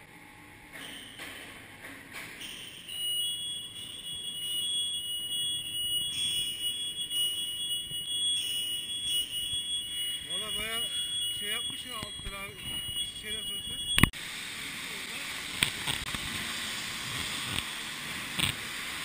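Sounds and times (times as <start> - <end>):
high-pitched electronic alarm tone: 2.4 - 14.1.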